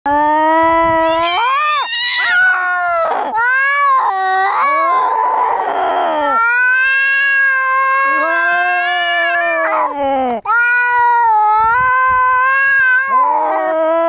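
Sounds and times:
cat yowling: 0:00.9 - 0:09.9, 0:10.5 - 0:14.0.

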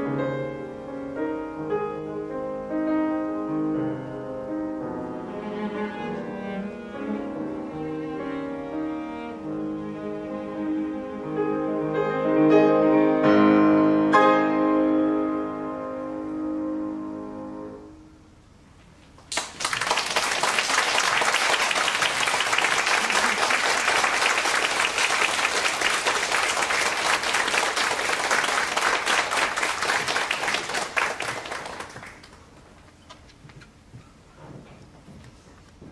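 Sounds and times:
piano chord: 0:09.4 - 0:18.2
audience applause: 0:19.3 - 0:32.5.

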